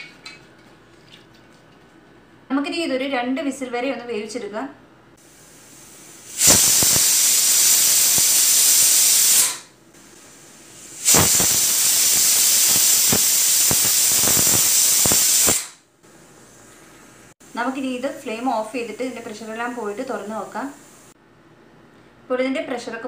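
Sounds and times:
pressure cooker whistling: 6.2 - 9.7, 11.0 - 15.8.

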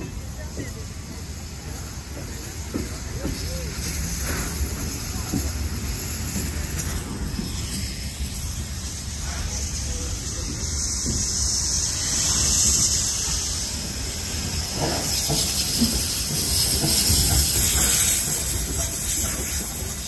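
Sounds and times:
hiss of escaping steam: 0.0 - 20.0
locomotive engine and wheels rumbling: 0.0 - 20.0.

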